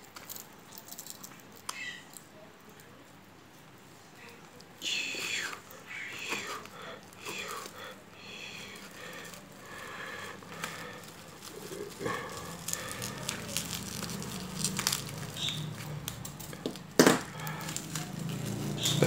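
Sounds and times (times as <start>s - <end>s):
plastic packing crinkling and tearing: 8.5s - 19.0s.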